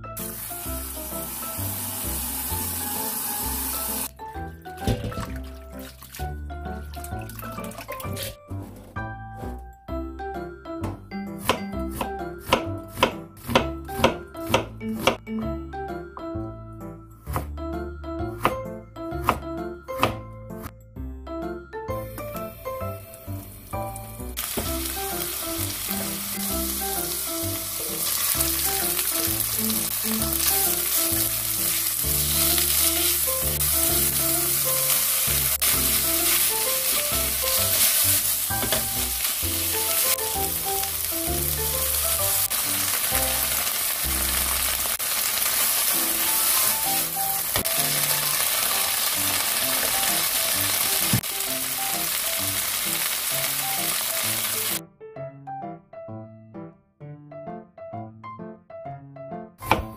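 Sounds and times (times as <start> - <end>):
soft background music: 0.0 - 44.5
oil sizzling in a wok: 0.2 - 4.1, 22.2 - 54.8
spatula stirring in a wok: 29.5 - 40.8.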